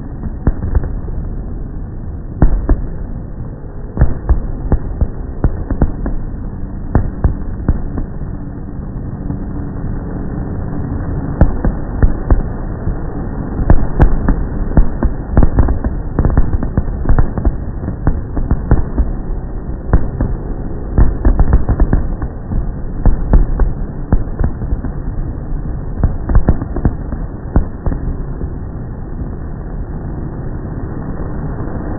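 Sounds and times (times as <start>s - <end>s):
low rumble: 0.0s - 31.9s
fireworks bangs and pops: 2.4s - 3.0s, 4.0s - 6.2s, 13.6s - 19.3s, 19.9s - 25.1s, 26.0s - 28.5s.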